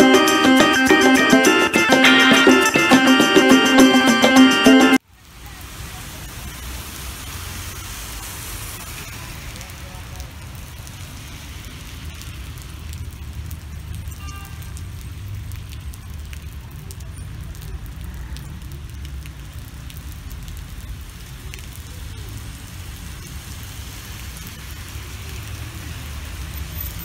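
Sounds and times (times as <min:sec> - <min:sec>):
high-pitched tone: 0:00.0 - 0:05.0
car traffic on wet road: 0:05.0 - 0:27.0
rain on a paved street: 0:05.0 - 0:27.0.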